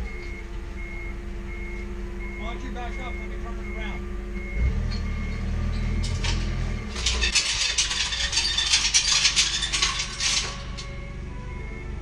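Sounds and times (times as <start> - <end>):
faint reversing beeper: 0.0 - 7.4
forklift engine running: 0.0 - 12.0.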